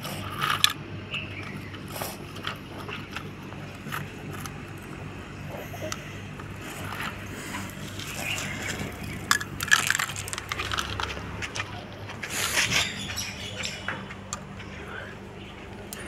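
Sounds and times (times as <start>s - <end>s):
steady low hum: 0.0s - 16.0s
plastic toy clicks and knocks: 0.4s - 0.8s, 8.2s - 11.7s.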